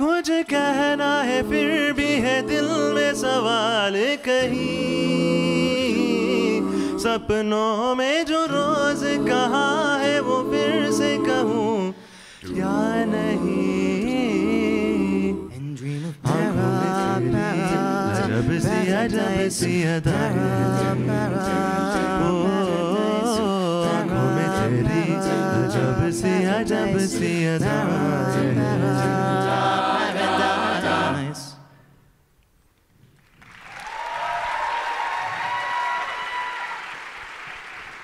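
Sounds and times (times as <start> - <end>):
a cappella group singing: 0.0 - 31.8
audience applause: 33.2 - 38.0.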